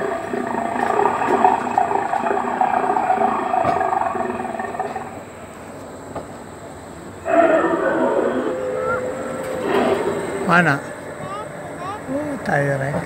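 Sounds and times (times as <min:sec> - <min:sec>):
recorded dinosaur roar: 0:00.0 - 0:05.3, 0:07.2 - 0:11.0.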